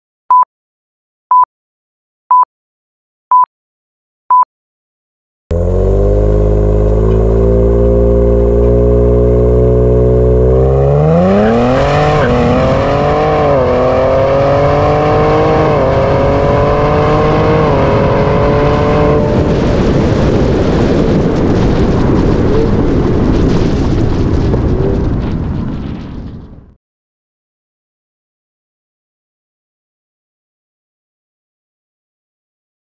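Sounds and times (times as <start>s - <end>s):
car engine accelerating: 5.5s - 20.2s
steady rushing noise: 11.0s - 26.5s.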